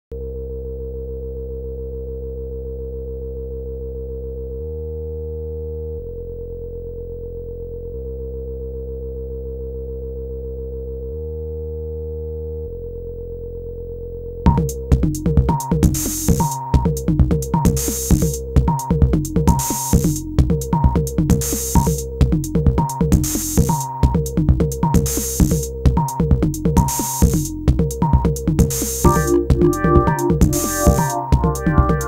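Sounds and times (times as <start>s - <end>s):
low synthesizer tone: 0.1s - 14.5s, 29.1s - 32.0s
drum machine beats: 14.5s - 32.0s.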